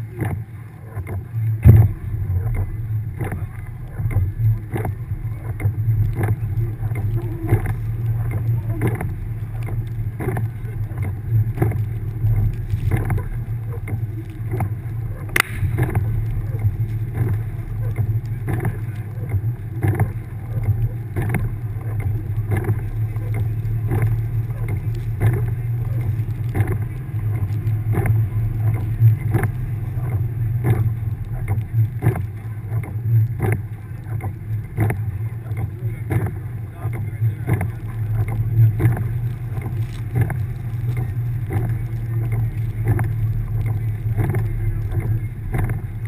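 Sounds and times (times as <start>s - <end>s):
car engine under load: 1.5s - 46.0s
knocks and thumps: 1.6s - 5.0s
sharp crack: 1.6s - 7.8s, 14.2s - 19.2s.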